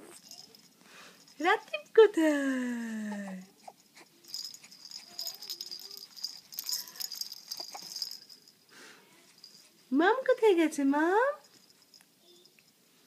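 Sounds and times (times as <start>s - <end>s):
baby rattle shaking: 0.0s - 1.9s, 3.4s - 8.6s, 9.3s - 9.9s, 11.4s - 12.8s
baby cooing softly: 3.0s - 8.1s.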